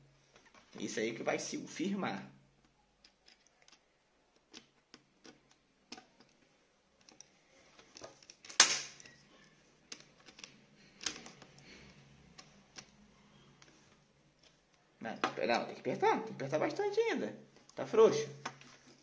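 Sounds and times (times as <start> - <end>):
light clicks of metal and plastic: 2.6 - 13.0.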